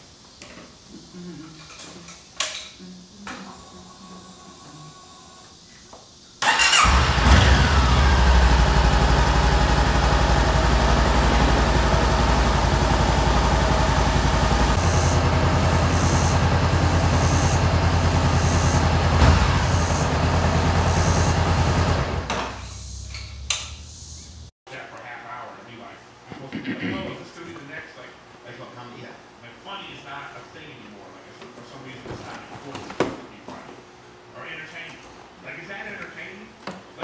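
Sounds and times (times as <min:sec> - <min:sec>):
motorcycle engine idling: 0:06.4 - 0:24.5.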